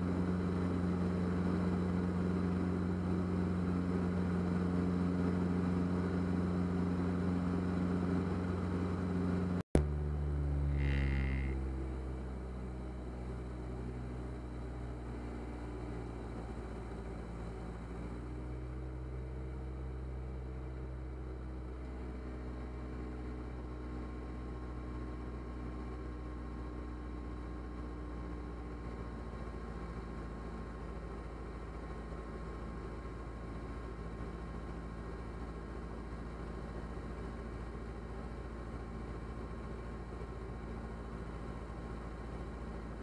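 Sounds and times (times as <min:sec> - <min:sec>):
aircraft engine and propeller droning: 0:00.0 - 0:21.2.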